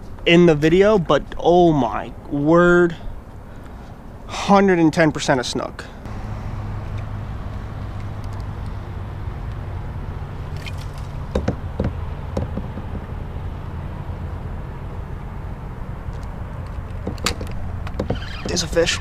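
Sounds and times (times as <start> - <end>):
engine humming: 6.0 - 19.0
sharp clicks and knocks: 10.6 - 13.2, 16.1 - 18.6.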